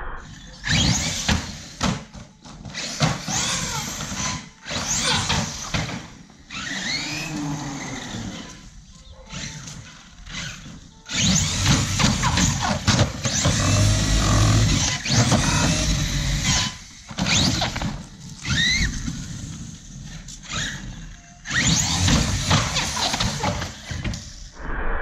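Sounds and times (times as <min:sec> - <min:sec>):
electric motor whine: 0:06.5 - 0:08.7.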